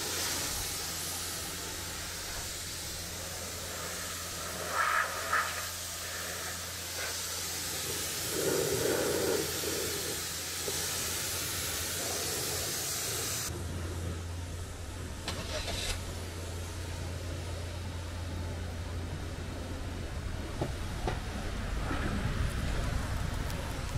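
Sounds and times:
high-pressure water jet hissing: 0.0 - 13.6, 15.0 - 18.0
low machine hum: 13.5 - 23.9.

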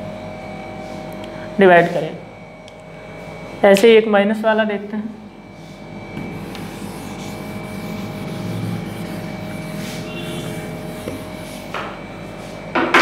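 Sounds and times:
eraser rubbing on whiteboard: 6.3 - 11.8.

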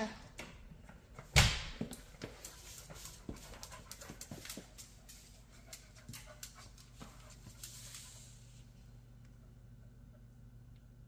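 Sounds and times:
dog panting: 2.4 - 8.3.

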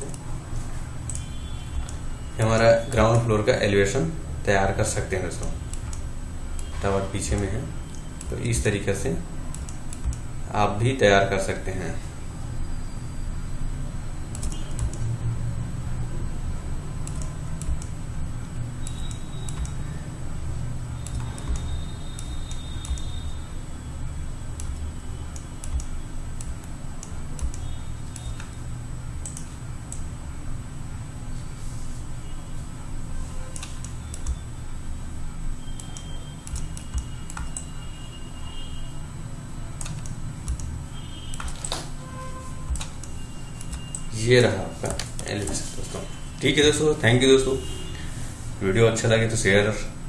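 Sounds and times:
keyboard and mouse clicks: 0.0 - 0.3, 1.0 - 2.0, 9.5 - 10.3, 14.3 - 15.2, 17.0 - 18.0, 18.8 - 19.9, 21.0 - 23.2, 24.5 - 28.6, 29.2 - 30.1, 33.5 - 34.4, 35.8 - 37.7, 39.8 - 41.9, 42.7 - 45.6
steady low hum: 0.0 - 50.0.

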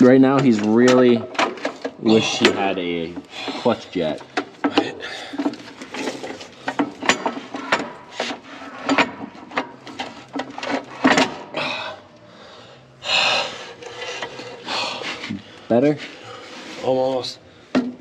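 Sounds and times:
metal knocks and clicks: 4.2 - 11.4.

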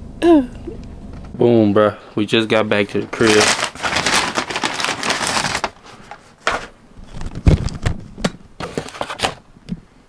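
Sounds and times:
paper bag rustling: 2.8 - 7.9.

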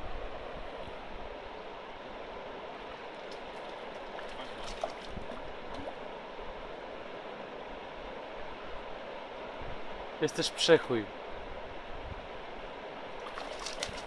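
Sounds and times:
river water flowing and rippling: 0.0 - 14.0
faint small splashes: 3.1 - 6.0, 13.2 - 14.0.

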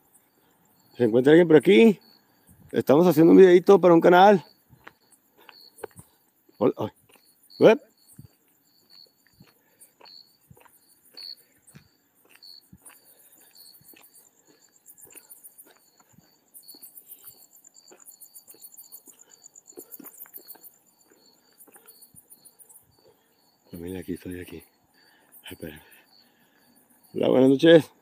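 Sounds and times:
crickets chirping: 0.0 - 28.0
high insect trill: 0.0 - 28.0.

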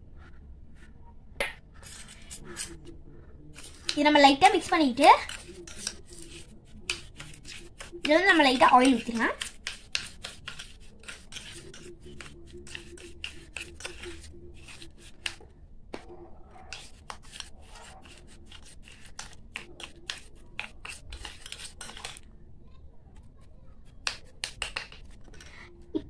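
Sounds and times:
metal spoon scraping steel bowl: 1.8 - 2.9, 3.5 - 15.4, 16.7 - 22.3.

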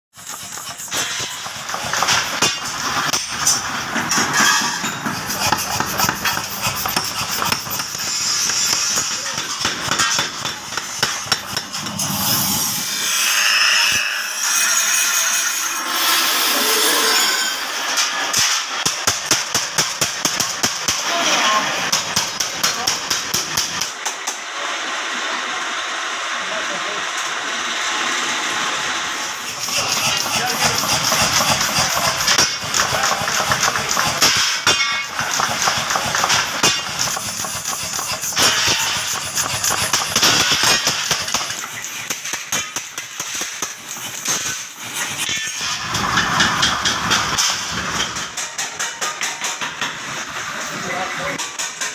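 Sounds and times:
metal rasping: 0.2 - 18.4, 29.5 - 48.3
power hammer striking steel: 0.2 - 24.5, 29.3 - 50.6.

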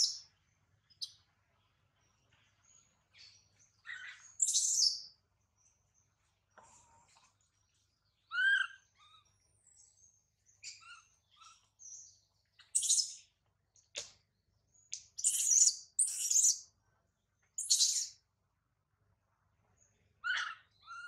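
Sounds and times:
soft chirps: 2.2 - 16.7, 17.5 - 18.2
baby monkey squealing: 8.3 - 9.2, 15.2 - 16.5, 20.2 - 21.0.

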